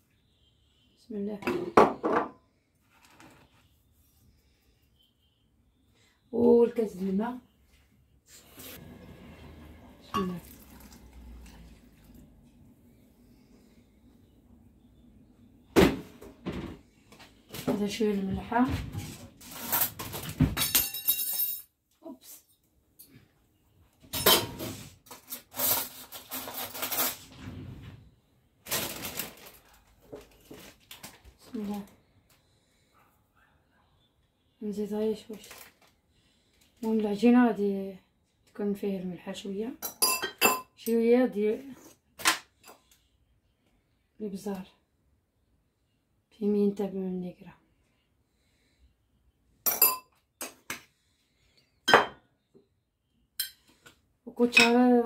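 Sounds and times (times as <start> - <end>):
metal spoon clinking on glass jug: 39.8 - 40.8, 49.7 - 50.1.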